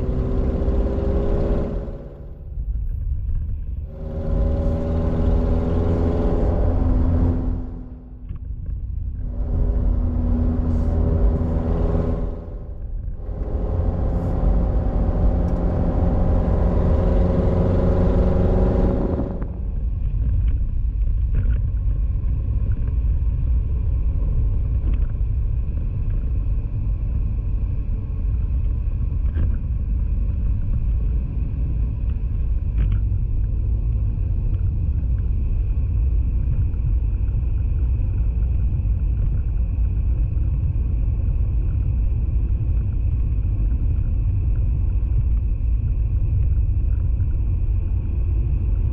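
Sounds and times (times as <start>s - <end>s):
car road and engine rumble: 0.0s - 48.9s
steady pitched hum: 3.8s - 20.2s.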